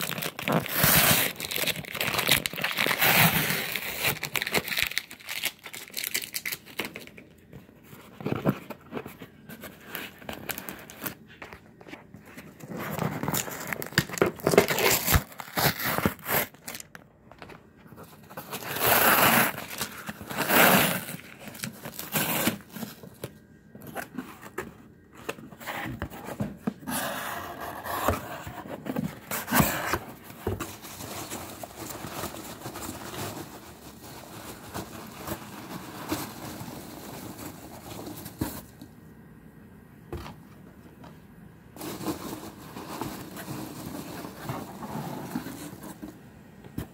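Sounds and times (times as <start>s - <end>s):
cardboard box tearing: 0.0s - 6.5s, 12.7s - 16.8s, 18.3s - 23.2s
packing peanuts rustling: 0.0s - 7.2s.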